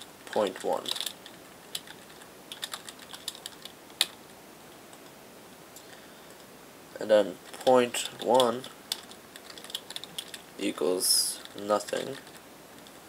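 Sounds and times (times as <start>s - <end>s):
computer keyboard typing: 0.2s - 4.2s, 7.5s - 10.5s, 11.4s - 13.0s.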